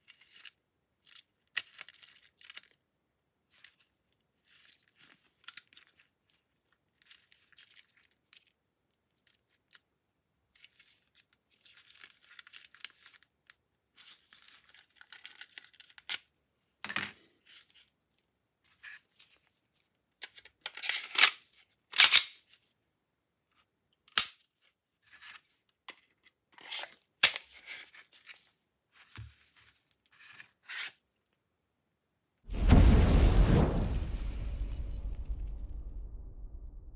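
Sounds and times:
pistol parts clicking: 20.2s - 22.4s, 24.1s - 24.5s.

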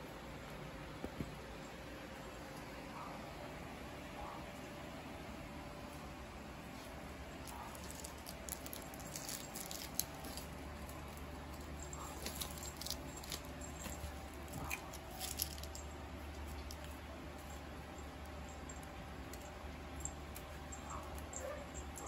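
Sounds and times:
cat claws clicking on tiled floor: 7.4s - 17.0s.

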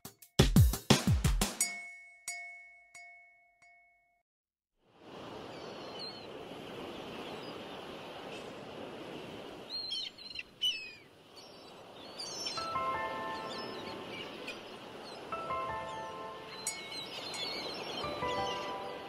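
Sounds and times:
birds calling: 5.2s - 19.0s.

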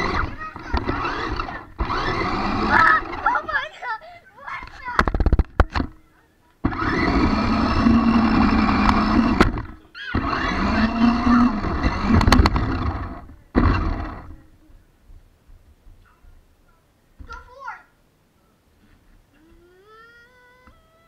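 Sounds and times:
toy car electric motor whirring: 0.0s - 3.6s, 6.6s - 14.4s.

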